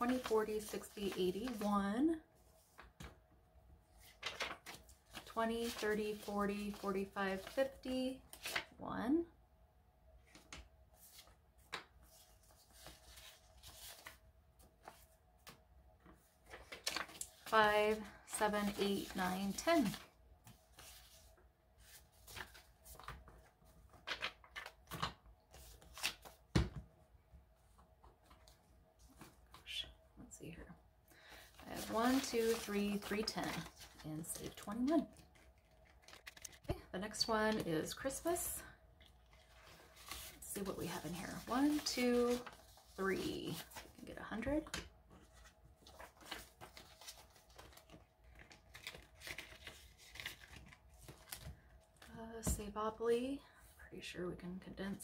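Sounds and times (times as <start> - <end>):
paper bills rustling: 0.0 - 1.8, 4.0 - 8.6, 31.2 - 36.7, 39.1 - 44.0, 45.1 - 51.7.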